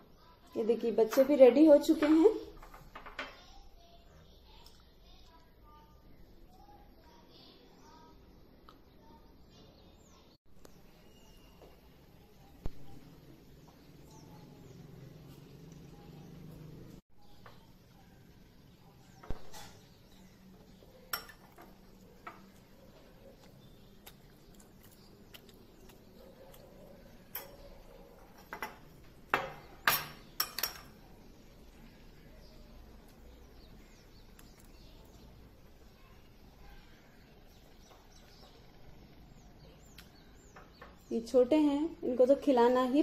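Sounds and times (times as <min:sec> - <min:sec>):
spoon and glasses clinking on table: 0:21.1 - 0:22.5, 0:28.4 - 0:31.0.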